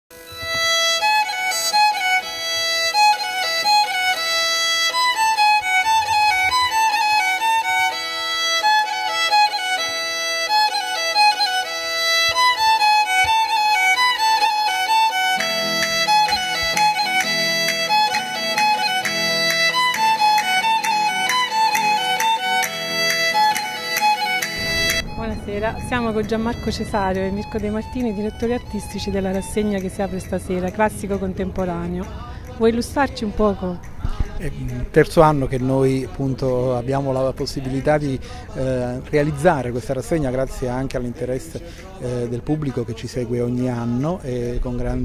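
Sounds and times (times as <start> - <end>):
violin playing quick melody: 0.2 - 33.2
lower accompaniment: 0.2 - 45.0.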